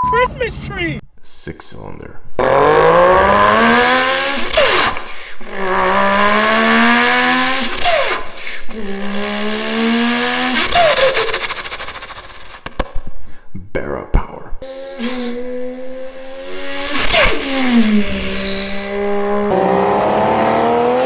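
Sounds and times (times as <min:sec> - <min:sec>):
man imitating engine revs: 0:02.4 - 0:11.8, 0:14.6 - 0:21.0.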